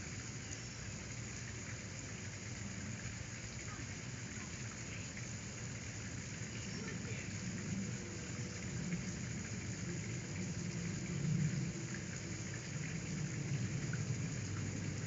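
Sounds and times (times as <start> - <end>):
steady rain: 0.0 - 15.0
low rumble: 7.2 - 15.0.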